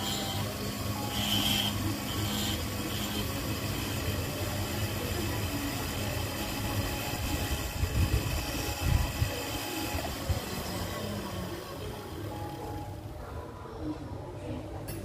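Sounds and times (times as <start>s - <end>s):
file against spinning metal: 0.0s - 10.9s
grinder handpiece running: 0.0s - 12.8s.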